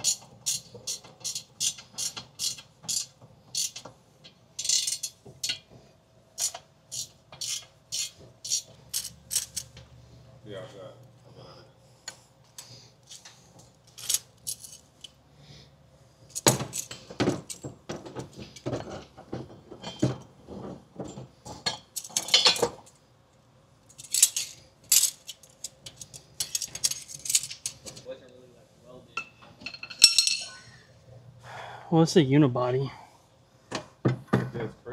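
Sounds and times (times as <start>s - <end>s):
metal tools clinking and rattling: 0.0s - 3.9s, 4.6s - 5.7s, 6.4s - 9.8s, 13.1s - 15.2s, 16.3s - 19.1s, 19.7s - 23.0s, 23.9s - 28.1s, 29.2s - 30.6s.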